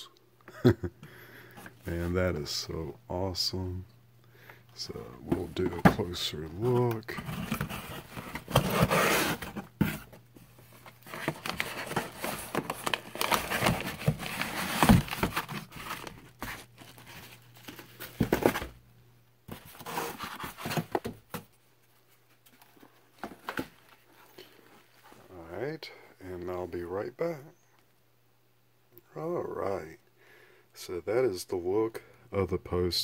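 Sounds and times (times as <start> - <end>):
paper rustling and crinkling: 5.3 - 18.8, 19.5 - 25.3.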